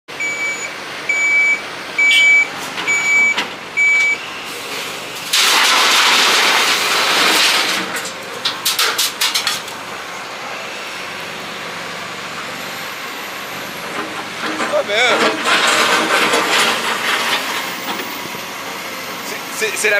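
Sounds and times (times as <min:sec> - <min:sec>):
engine running steadily: 0:00.1 - 0:19.9
reversing alarm beeps: 0:00.2 - 0:04.5.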